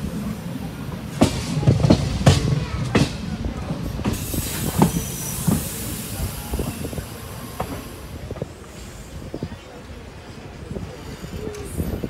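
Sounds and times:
train rumble: 0:00.0 - 0:12.0
train wheels knocking over rail joints: 0:00.8 - 0:08.5
high hiss: 0:03.8 - 0:09.2.

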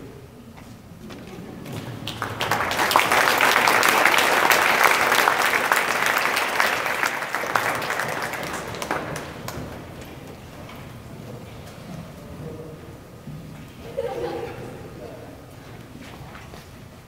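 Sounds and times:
audience applauding: 0:01.6 - 0:10.5.

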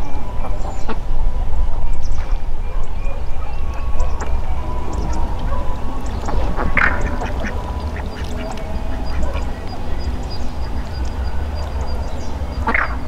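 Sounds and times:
animal calls: 0:02.7 - 0:13.0
steady low hum: 0:03.2 - 0:13.0.

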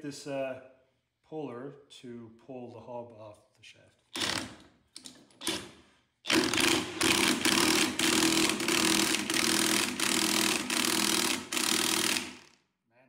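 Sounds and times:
impact wrench hammering: 0:04.2 - 0:05.7, 0:06.3 - 0:12.5.

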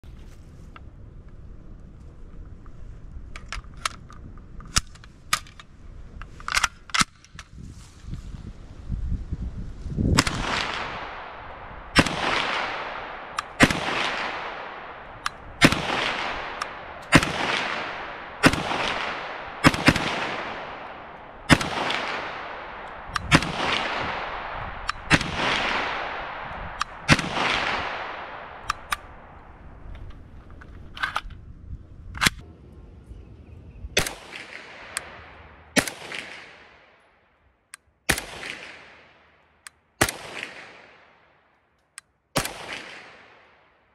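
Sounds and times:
submachine gun shots: 0:11.9 - 0:26.4.

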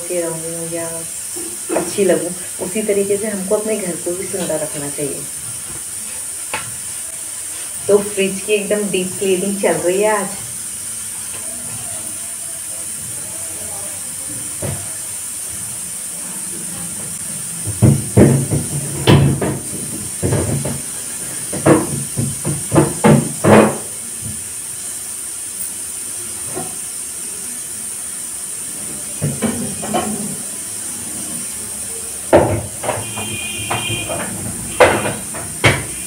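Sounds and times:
steady high hiss: 0:00.0 - 0:36.0
knocks and clatter in refrigerator: 0:17.6 - 0:24.4, 0:32.3 - 0:36.0.

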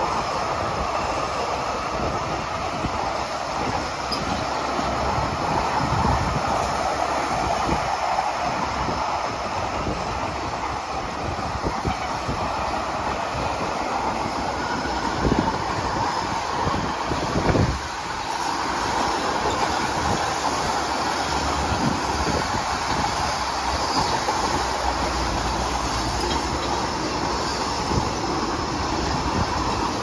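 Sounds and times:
wheels rumbling on rails: 0:00.0 - 0:30.0
clicking over rail joints: 0:14.8 - 0:30.0.

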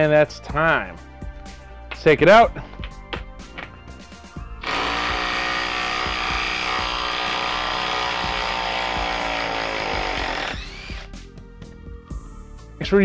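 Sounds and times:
impact driver hammering: 0:04.6 - 0:11.1.

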